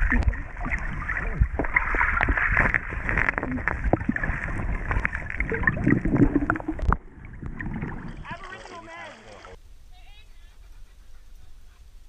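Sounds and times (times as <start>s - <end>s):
small underwater clicks and knocks: 0.0s - 7.9s
muffled underwater river rush: 0.0s - 9.6s.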